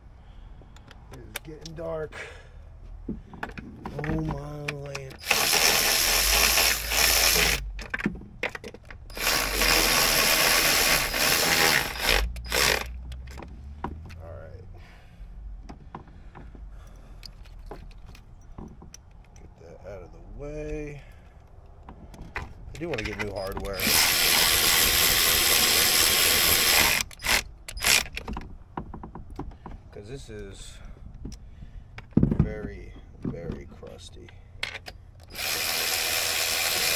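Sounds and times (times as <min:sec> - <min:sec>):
loose ratchet clicks: 0:04.6 - 0:13.3
power ratchet rattling: 0:04.9 - 0:13.3, 0:22.8 - 0:28.5, 0:34.7 - 0:36.9.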